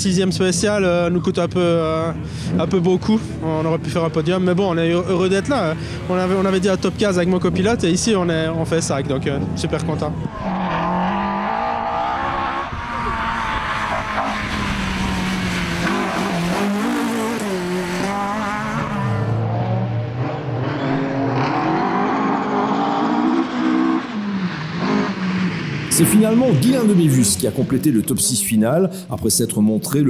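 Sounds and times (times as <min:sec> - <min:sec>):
rally car engines revving: 0:00.1 - 0:28.5.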